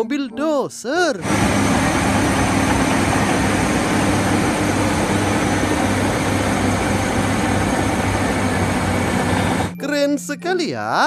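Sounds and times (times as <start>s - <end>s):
bulldozer diesel engine drone: 1.2s - 9.8s.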